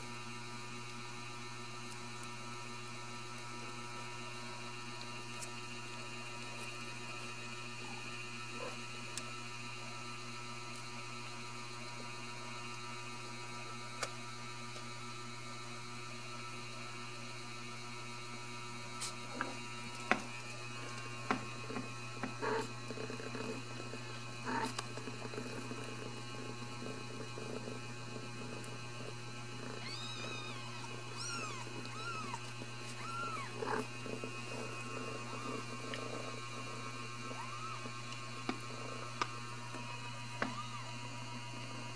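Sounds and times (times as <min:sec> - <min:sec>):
electrical hum: 0:00.0 - 0:41.9
kittens mewing: 0:29.5 - 0:36.4, 0:37.2 - 0:38.0.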